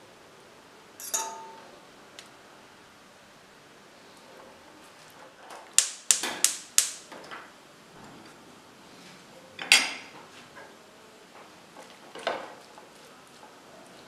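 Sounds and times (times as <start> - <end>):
kitchen utensils clattering: 1.0 - 1.7, 9.6 - 10.2.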